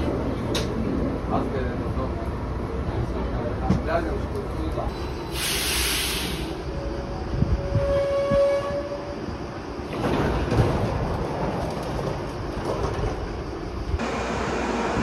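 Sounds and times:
train motors and wheels: 0.0 - 15.0
air hiss: 5.3 - 6.7.

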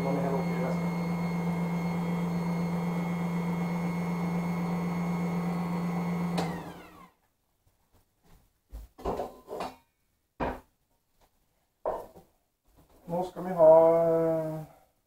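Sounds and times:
motor winding down whine: 0.0 - 7.1
stand mixer humming: 0.0 - 7.1.

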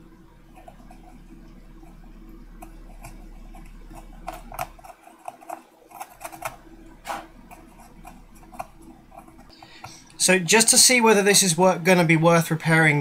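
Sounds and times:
blade scraping circuit board: 0.5 - 10.2.

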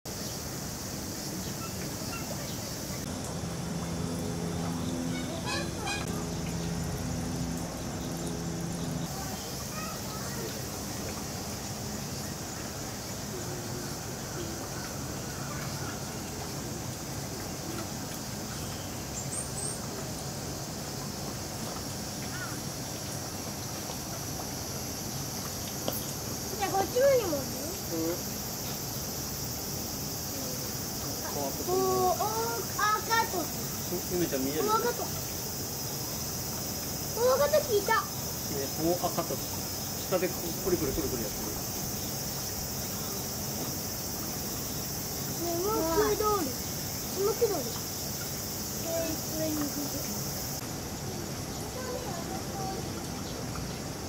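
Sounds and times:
steady low hum: 0.1 - 21.7
insects droning: 0.1 - 54.0
bird chirps: 1.2 - 3.1, 4.5 - 6.8
low hum: 3.0 - 9.6.

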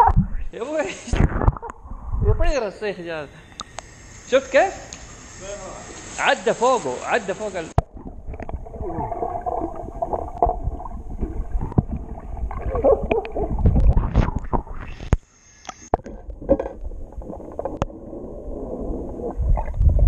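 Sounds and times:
muffled underwater water sloshing: 7.8 - 15.0.

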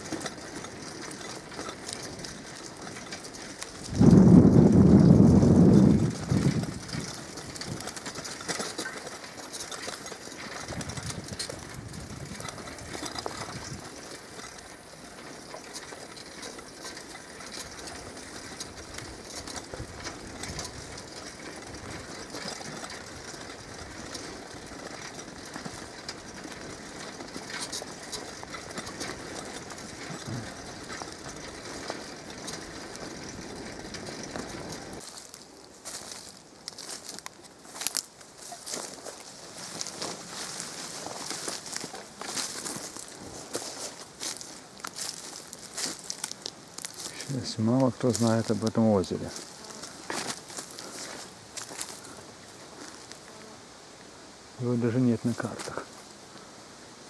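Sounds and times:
small crackles and ticks: 0.0 - 53.6, 54.6 - 56.5
rustling hiss in forest: 35.0 - 57.0.

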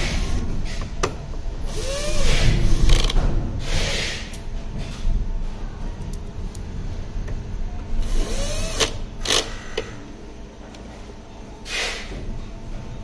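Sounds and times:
cordless drill motor running: 1.7 - 3.2, 8.0 - 9.5.

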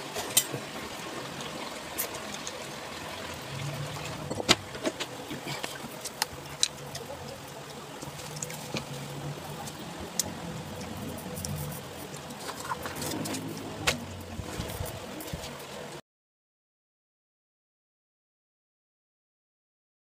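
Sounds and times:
low hum: 2.2 - 16.0.

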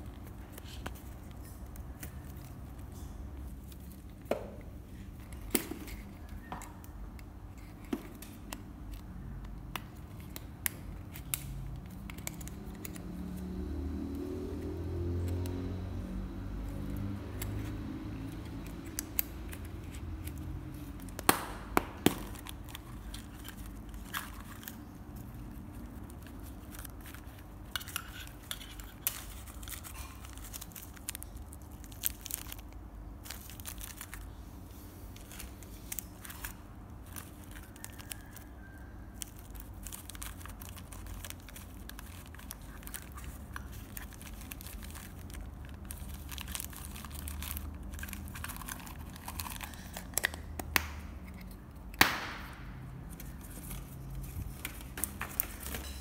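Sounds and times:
plastic bags crinkling: 16.8 - 51.5, 52.1 - 56.0.

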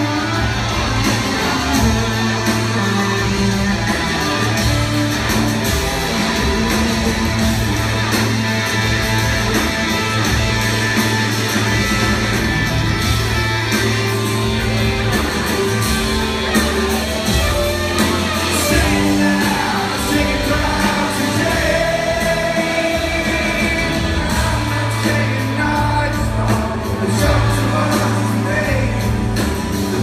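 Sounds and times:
rock band playing live: 0.0 - 30.0
person singing: 16.2 - 30.0.

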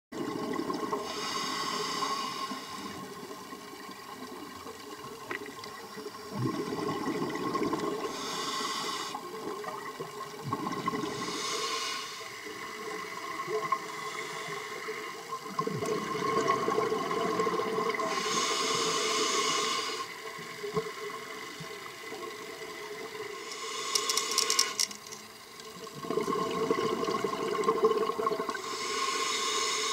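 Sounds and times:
exhaled bubbles rushing: 0.2 - 1.1, 6.2 - 8.1, 9.4 - 11.3, 15.4 - 18.0, 25.8 - 28.6
faint steady whine: 0.2 - 29.9
regulator hissing inhalations: 1.0 - 3.2, 8.0 - 9.3, 11.1 - 12.6, 13.8 - 15.4, 18.0 - 20.3, 23.3 - 25.0, 28.5 - 29.9.

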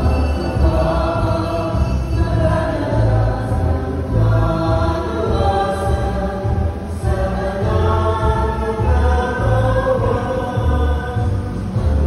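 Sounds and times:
choir singing a hymn: 0.0 - 12.0
low bass accompaniment: 0.0 - 12.0.

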